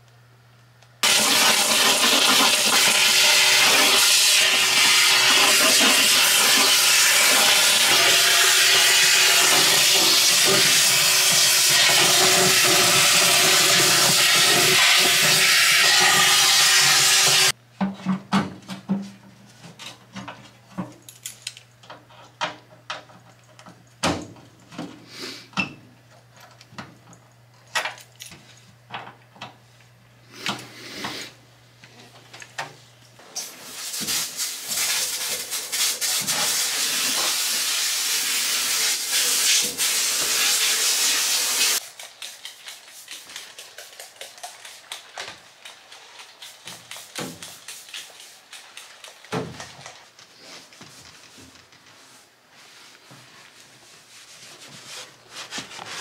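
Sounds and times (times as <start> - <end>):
loud hiss with steady tones: 1.0 - 17.5.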